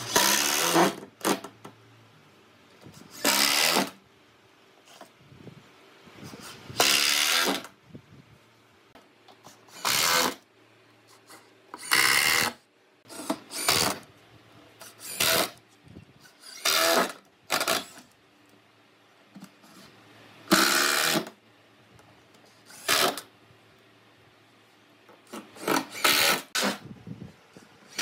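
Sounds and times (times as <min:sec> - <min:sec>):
cordless drill driving screws: 0:00.1 - 0:01.0, 0:03.1 - 0:04.0, 0:06.8 - 0:07.7, 0:09.7 - 0:10.4, 0:11.8 - 0:14.0, 0:14.8 - 0:15.6, 0:16.4 - 0:18.0, 0:20.5 - 0:21.3, 0:22.7 - 0:23.2, 0:25.6 - 0:26.8.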